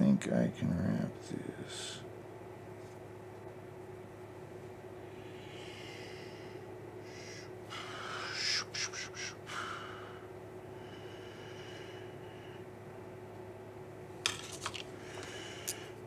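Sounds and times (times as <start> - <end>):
faint steady hum: 0.0 - 16.0
man breathing: 5.0 - 12.7, 14.9 - 16.0.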